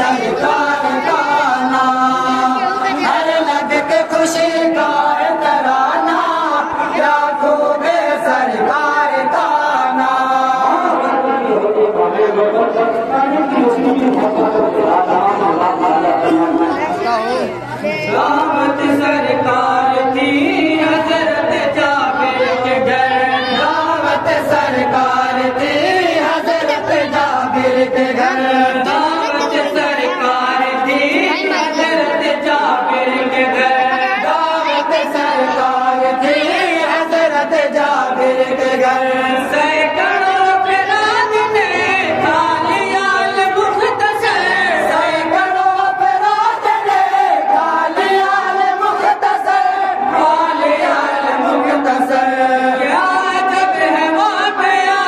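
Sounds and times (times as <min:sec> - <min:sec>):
men chanting in unison: 0:00.0 - 0:55.0
man leading at a microphone: 0:10.6 - 0:20.2.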